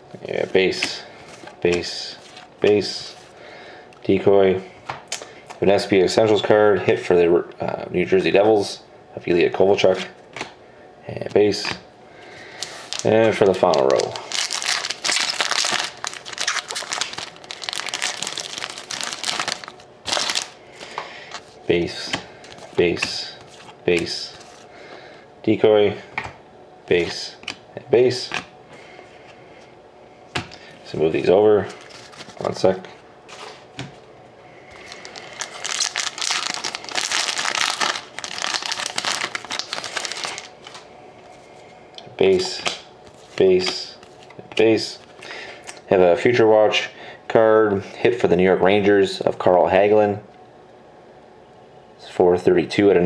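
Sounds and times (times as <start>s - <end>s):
foil wrapper crinkling: 12.5s - 24.7s, 31.6s - 33.7s, 34.7s - 40.9s.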